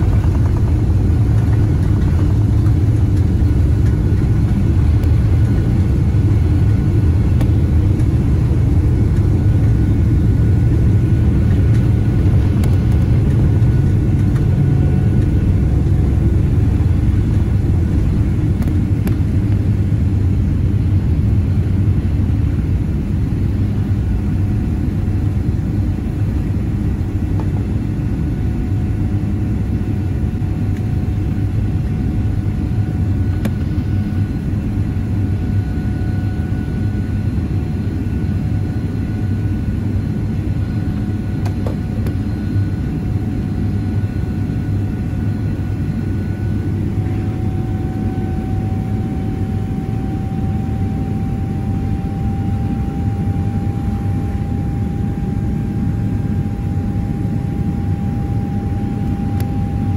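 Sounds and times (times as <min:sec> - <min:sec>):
jet engines roaring in cabin: 0:00.0 - 0:59.9.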